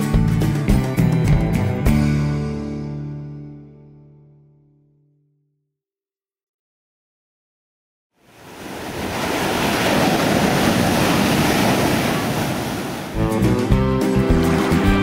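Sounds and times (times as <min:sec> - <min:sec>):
guitar music: 0:00.0 - 0:05.3, 0:13.2 - 0:15.0
ocean surf and waves: 0:08.2 - 0:15.0.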